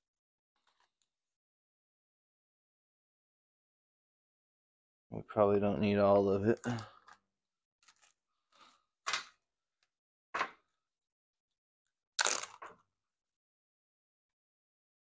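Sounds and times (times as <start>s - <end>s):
plastic food bags crinkling: 7.8s - 8.8s, 12.2s - 12.6s.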